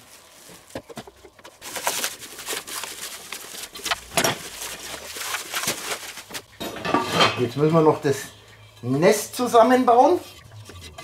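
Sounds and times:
plastic film crinkling: 0:00.0 - 0:06.5.

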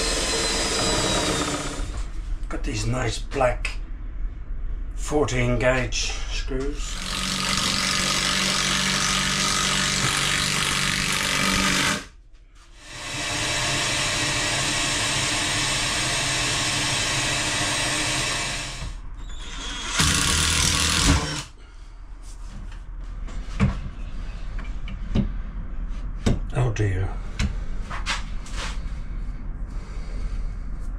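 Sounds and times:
impact driver driving screws: 0:19.4 - 0:21.5.

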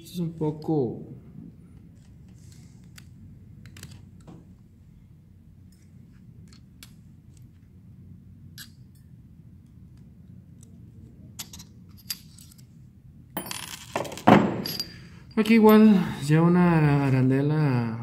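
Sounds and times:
handling noise: 0:13.4 - 0:15.4.

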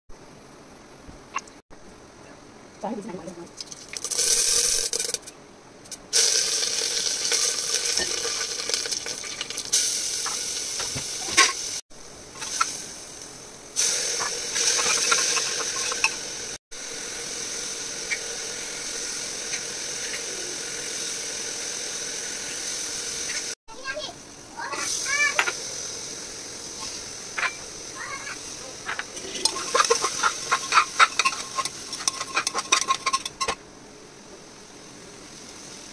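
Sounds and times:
food sizzling in hot oil: 0:03.5 - 0:05.3, 0:05.9 - 0:33.6, 0:34.5 - 0:35.9
metal spatula stirring: 0:14.2 - 0:16.2, 0:28.8 - 0:33.6.

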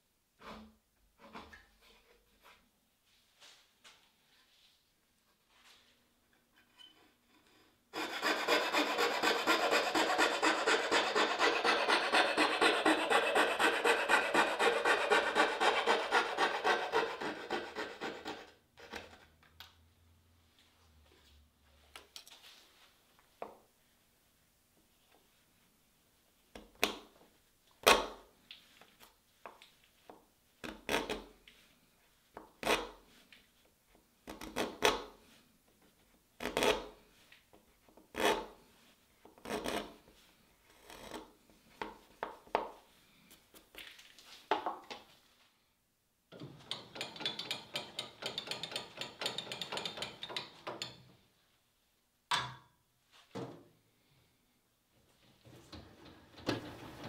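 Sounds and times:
chisel scraping wood: 0:07.6 - 0:19.0, 0:36.4 - 0:37.0, 0:38.1 - 0:38.6, 0:39.4 - 0:40.0, 0:40.7 - 0:41.3.

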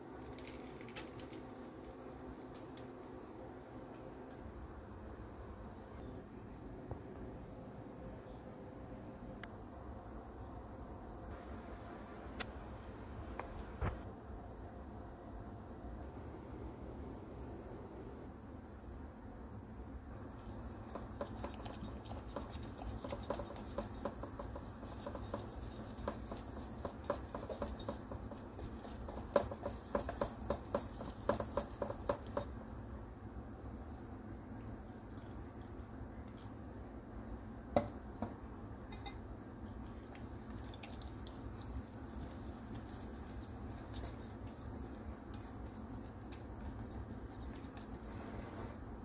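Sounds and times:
whisking wet batter: 0:20.4 - 0:32.6, 0:39.7 - 0:48.8
whisk clicking against glass bowl: 0:20.8 - 0:32.5.

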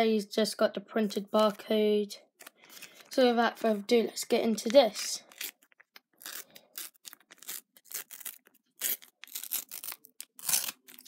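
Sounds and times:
wrapper crinkling and tearing: 0:02.4 - 0:03.8, 0:04.5 - 0:11.0.

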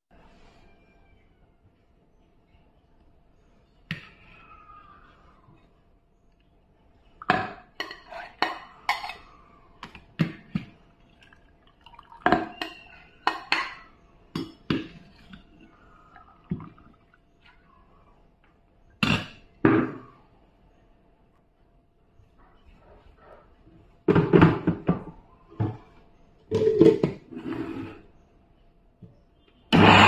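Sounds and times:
water dripping: 0:11.0 - 0:13.7, 0:15.2 - 0:17.7.

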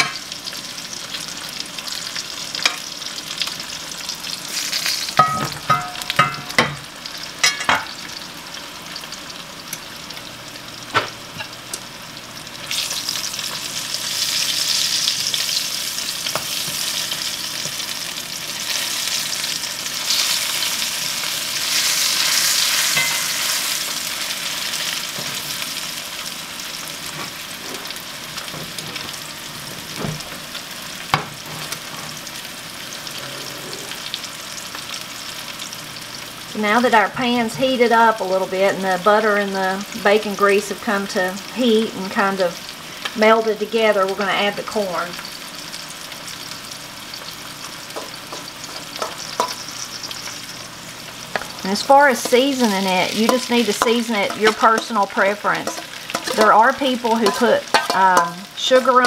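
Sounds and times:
fat sizzling in skillet: 0:00.0 - 0:59.0
fork clinking on cast iron: 0:05.2 - 0:06.8, 0:22.9 - 0:23.4, 0:48.0 - 0:49.6, 0:55.6 - 0:56.6, 0:57.2 - 0:58.3.

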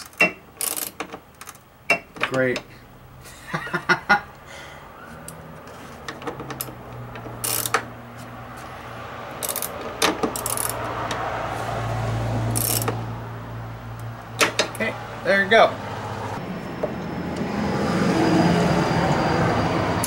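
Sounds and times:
hand ratchet clicking: 0:00.0 - 0:01.6, 0:06.5 - 0:07.8, 0:09.4 - 0:11.2, 0:12.5 - 0:13.0.

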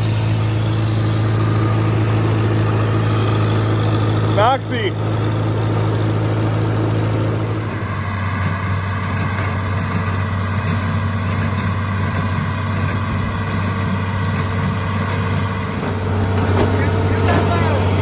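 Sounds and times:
small square baler running: 0:00.0 - 0:18.0
tractor engine running: 0:00.0 - 0:18.0.

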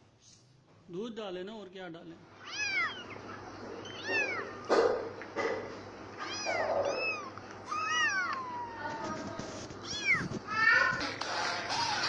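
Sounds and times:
cat meowing: 0:02.4 - 0:04.7, 0:06.2 - 0:09.0, 0:09.8 - 0:10.8.

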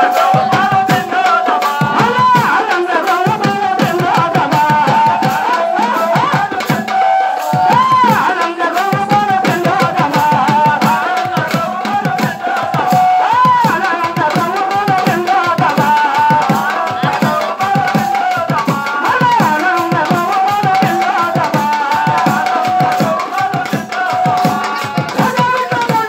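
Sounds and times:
hand drum beating: 0:00.0 - 0:06.9, 0:07.5 - 0:26.0
person singing devotional melody: 0:00.0 - 0:26.0.

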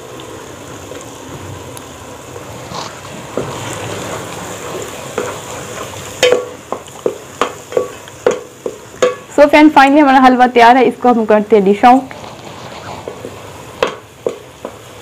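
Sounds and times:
food sizzling in a pot: 0:00.0 - 0:15.0
wooden spoon stirring: 0:02.6 - 0:09.2, 0:11.8 - 0:15.0
spoon knocking against pot: 0:06.2 - 0:09.3.

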